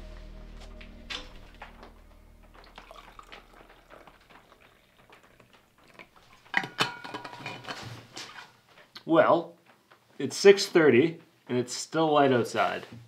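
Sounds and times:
liquid pouring into metal cup: 2.6s - 7.5s.

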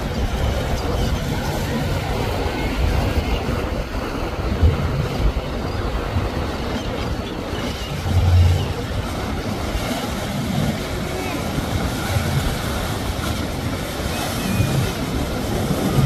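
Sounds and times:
boat engine rumble: 0.0s - 16.0s
water rushing from wake: 0.0s - 16.0s.

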